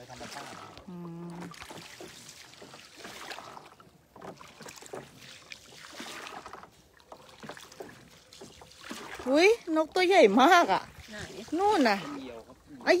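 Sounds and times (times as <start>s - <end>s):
water splashing around a boat: 0.0s - 13.0s.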